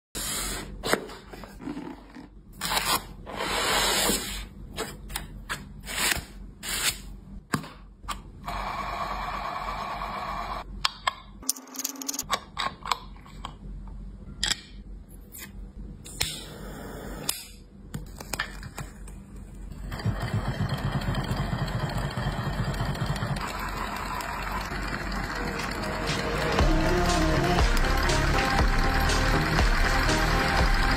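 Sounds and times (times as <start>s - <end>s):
steady fast pulsing engine: 20.0s - 30.9s.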